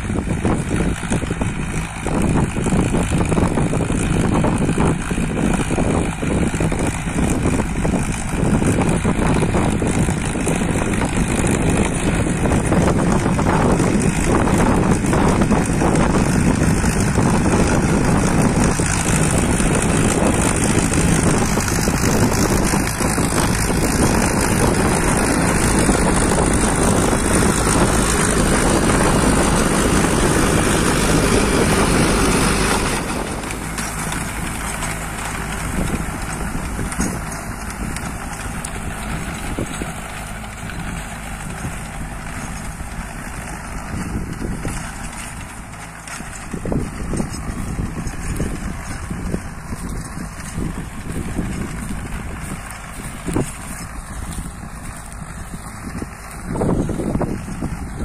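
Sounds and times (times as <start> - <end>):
rotavator churning soil: 0.0 - 58.0
tractor diesel engine under load: 0.0 - 58.0.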